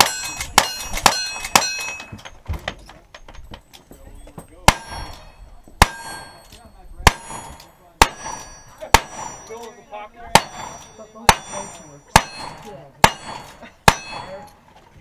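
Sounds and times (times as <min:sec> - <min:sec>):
steel plate target ringing: 0:00.0 - 0:02.1, 0:04.7 - 0:09.6, 0:10.3 - 0:14.5.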